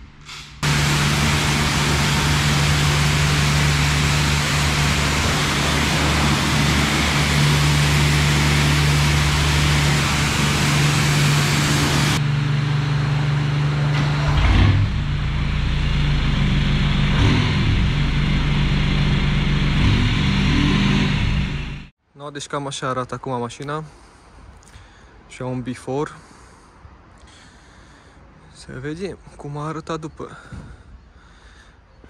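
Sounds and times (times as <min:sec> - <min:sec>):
hiss: 0:00.2 - 0:12.2
car engine humming: 0:00.6 - 0:21.9
short low rumble: 0:00.6 - 0:21.9.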